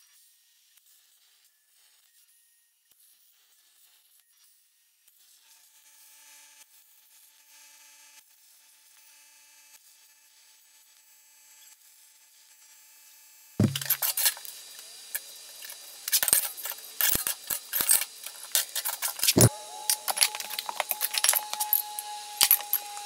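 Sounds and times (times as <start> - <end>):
metal plates clinking: 16.2 - 23.0.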